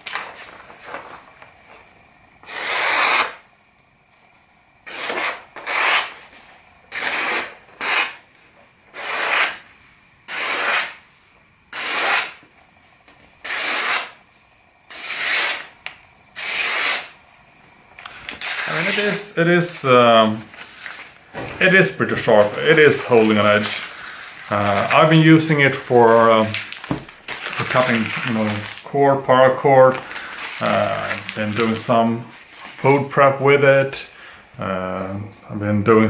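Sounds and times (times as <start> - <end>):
knife slicing paper: 4.9 - 6.2, 6.9 - 8.2, 8.9 - 9.6, 10.3 - 11.0, 11.7 - 12.4, 13.4 - 14.2, 14.9 - 15.7, 16.4 - 17.1, 18.0 - 19.3.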